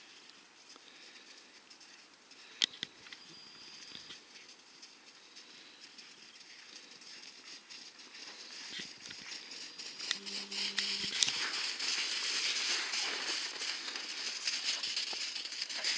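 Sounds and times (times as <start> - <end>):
footsteps crunching in snow: 3.7 - 15.9
low hum: 8.4 - 15.9.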